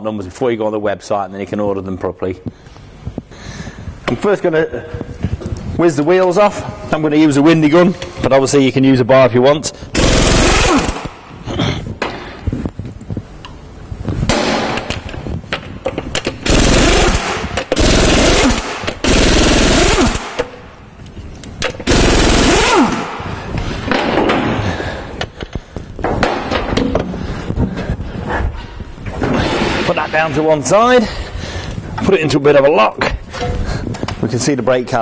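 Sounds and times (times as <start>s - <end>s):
air impact wrench hammering: 9.9s - 11.4s, 14.3s - 20.7s, 21.6s - 27.1s.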